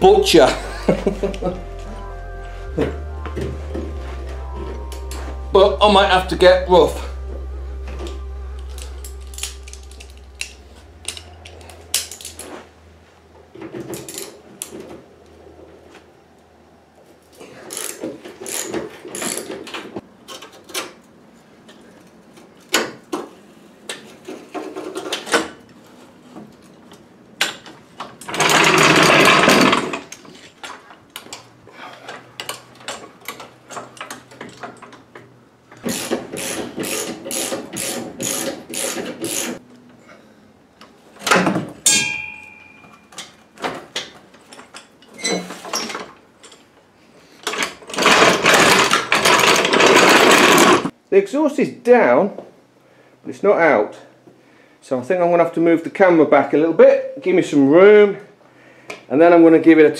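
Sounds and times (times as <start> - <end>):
loud metal scraping: 5.5 - 14.7
ratchet and spanner clicks: 35.8 - 39.6
sharp metal clanks: 41.8 - 43.4.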